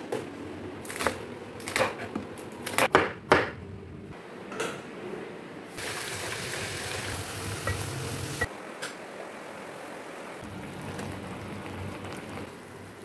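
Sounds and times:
cabbage sizzling in a pan: 5.8 - 8.5.

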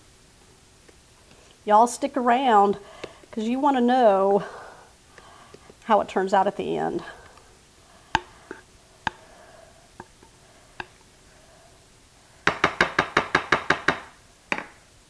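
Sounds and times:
spatula tapping bowl: 8.1 - 9.3, 10.0 - 11.1.

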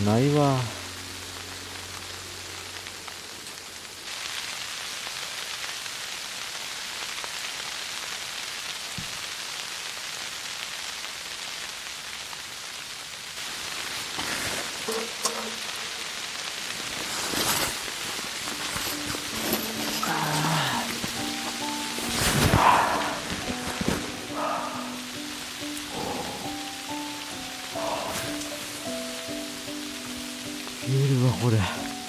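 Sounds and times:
steady rain falling: 0.0 - 32.0.

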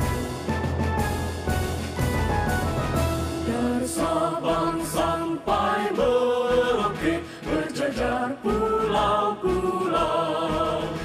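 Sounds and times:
woman singing with instruments: 3.4 - 5.7.

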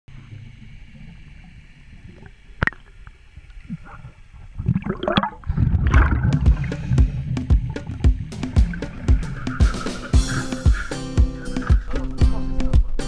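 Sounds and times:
underwater gurgling: 0.1 - 13.0
knocks on hull: 6.0 - 10.8.

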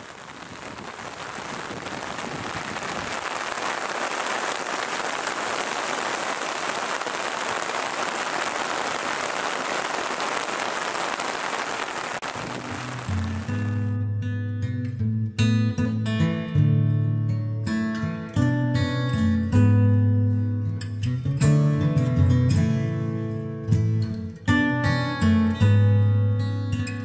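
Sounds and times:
heavy rain on water: 0.0 - 13.9
acoustic guitar music: 12.5 - 27.0.

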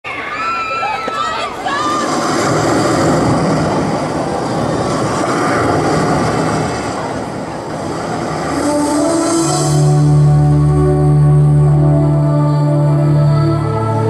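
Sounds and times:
music with long held notes: 7.8 - 14.0.

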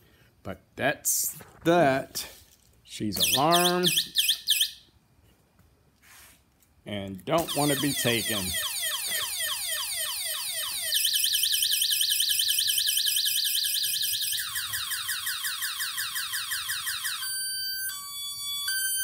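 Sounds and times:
e-bike alarm siren: 3.2 - 4.9, 7.4 - 19.0.

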